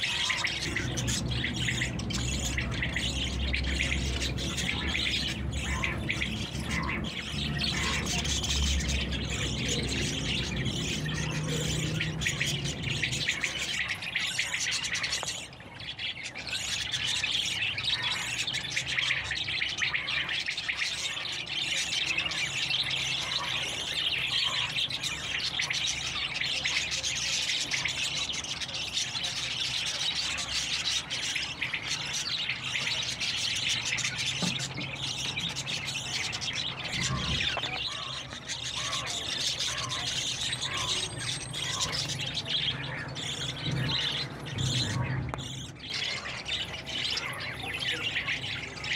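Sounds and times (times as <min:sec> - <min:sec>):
small birds chirping: 0:00.0 - 0:48.9.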